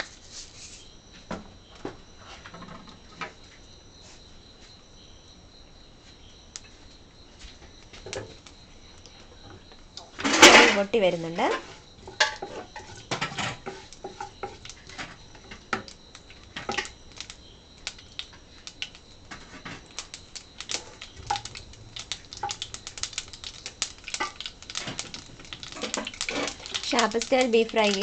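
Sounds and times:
mustard seeds popping in hot oil: 7.6 - 28.0.

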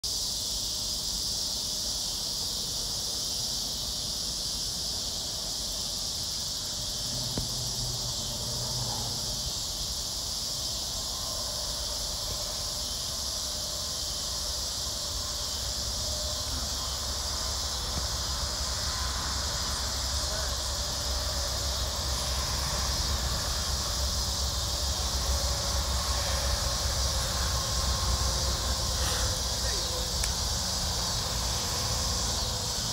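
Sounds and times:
insects chirring: 0.0 - 32.9.

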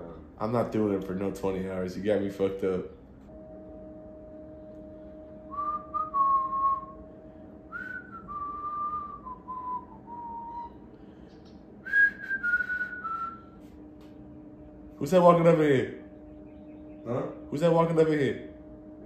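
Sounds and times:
faint steady hum: 0.0 - 19.0
person whistling a slow tune: 5.5 - 7.0, 7.7 - 13.7.

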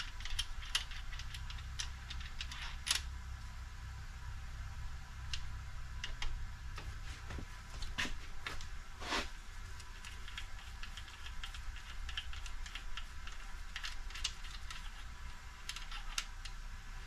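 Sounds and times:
metallic clicks of engine parts: 0.0 - 3.2, 5.2 - 6.4, 9.8 - 16.7.

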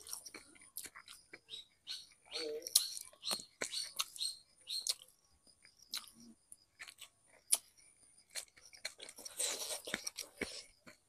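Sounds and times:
person chewing with lip smacks: 0.0 - 1.5, 4.8 - 5.1, 5.7 - 7.7, 8.3 - 11.0.

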